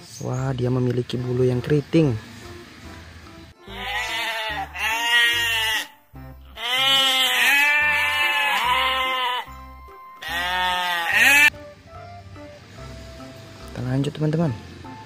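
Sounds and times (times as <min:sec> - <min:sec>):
background music: 0:00.0 - 0:15.0
sheep bleating: 0:03.6 - 0:09.6, 0:10.2 - 0:11.5.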